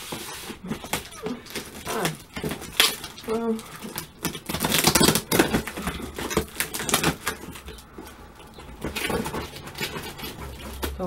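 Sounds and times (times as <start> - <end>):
scissors cutting packing tape: 0.1 - 7.8.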